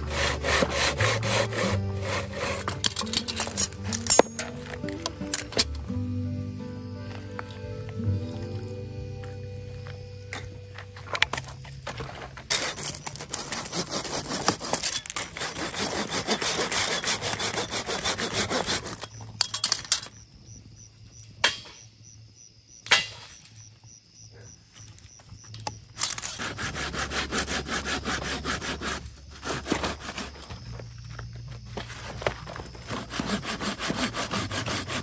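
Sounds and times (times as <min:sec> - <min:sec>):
hand saw cutting wood: 0:00.0 - 0:05.7, 0:12.5 - 0:19.1, 0:26.0 - 0:30.6, 0:32.8 - 0:35.0.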